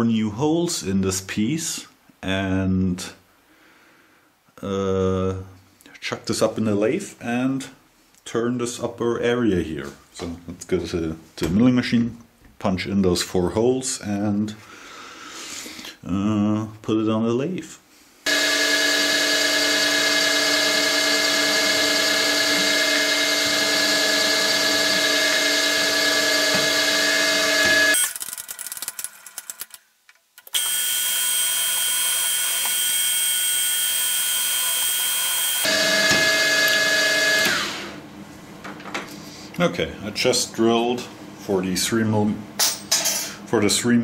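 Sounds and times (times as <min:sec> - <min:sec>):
milling machine spindle whine: 0:18.3 - 0:28.1, 0:30.6 - 0:38.0
drill boring into aluminium: 0:18.3 - 0:29.6, 0:30.5 - 0:38.0.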